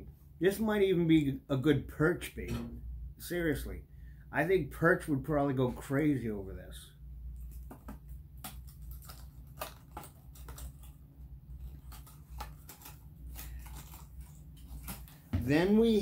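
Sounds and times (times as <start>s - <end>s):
plastic package crinkling: 8.4s - 15.3s.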